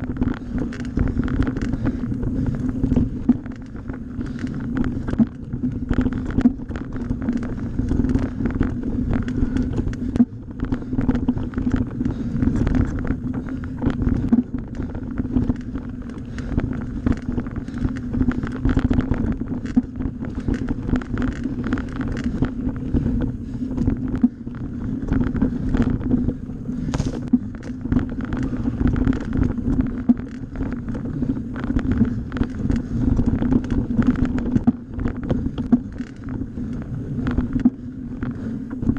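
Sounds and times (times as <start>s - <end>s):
bike rattling and knocking: 0.0s - 38.9s
tyres humming on dirt: 0.0s - 38.9s
wind buffeting microphone: 0.0s - 38.9s.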